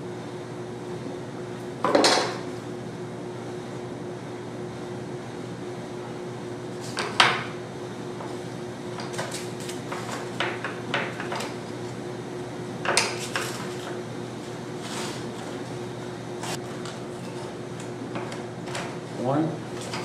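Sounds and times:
steady low hum: 0.0s - 20.0s
wooden parts knocking on workbench: 1.8s - 2.4s.

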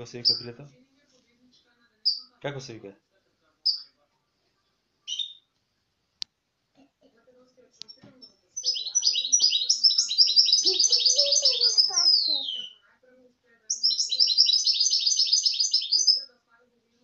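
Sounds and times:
bird singing high twittering notes: 5.1s - 5.5s, 8.6s - 12.8s, 13.7s - 16.3s.

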